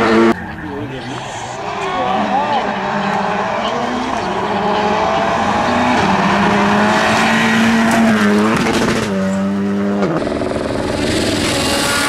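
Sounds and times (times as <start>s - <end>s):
rally car engine at high revs: 0.0s - 12.0s.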